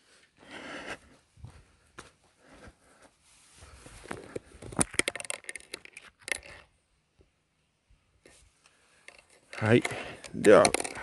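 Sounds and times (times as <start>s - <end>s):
rustling and crackling clicks: 3.8s - 6.8s, 8.2s - 11.0s.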